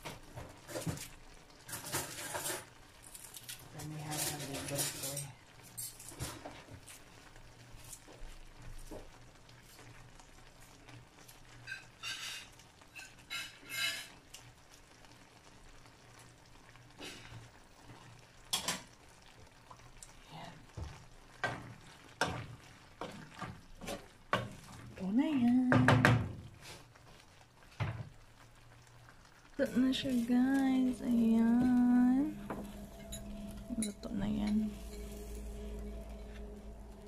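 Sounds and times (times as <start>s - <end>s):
utensils scraping a frying pan: 0.6s - 6.6s, 11.6s - 14.2s.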